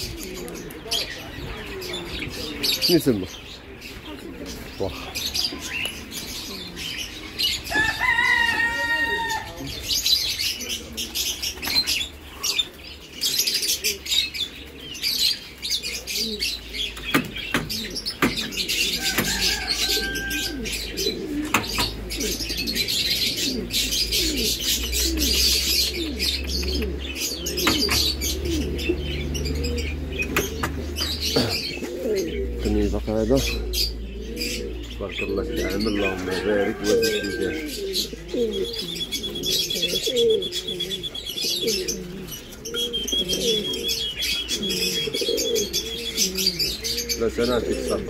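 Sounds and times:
loud bird calls: 0.0 - 48.0
pigeons cooing: 0.0 - 48.0
small birds chirping: 0.0 - 48.0
wings flapping against cages: 11.0 - 12.8.

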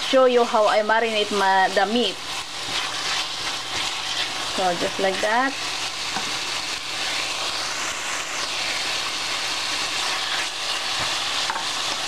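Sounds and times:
meat sizzling in hot oil: 0.0 - 12.0
wooden spoon stirring: 1.9 - 5.4.

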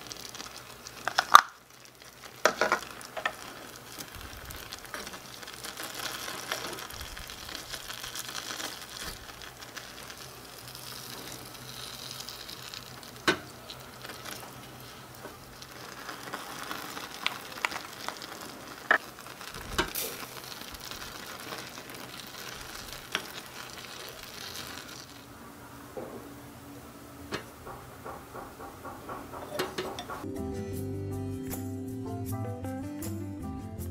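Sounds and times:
vegetables sizzling in a wok: 0.0 - 30.2
spatulas tapping a pan: 2.4 - 10.2, 10.8 - 25.0, 27.3 - 30.3.

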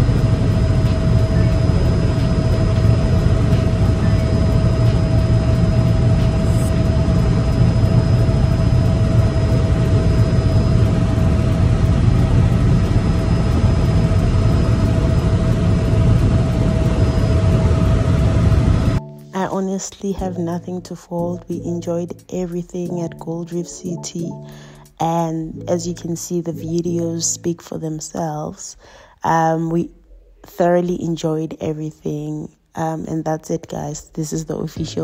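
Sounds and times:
helicopter rotor and engine drone: 0.0 - 19.0
thin steady whine: 0.0 - 20.7.

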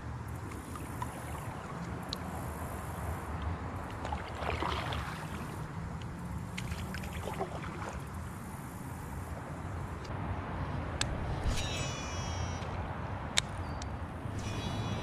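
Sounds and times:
water lapping around kayak hull: 0.0 - 9.9.

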